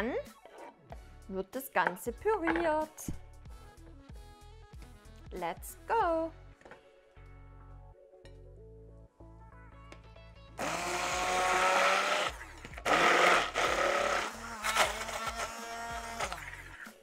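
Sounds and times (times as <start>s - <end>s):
soft background music: 0.0s - 17.0s
hand blender running: 10.6s - 16.4s.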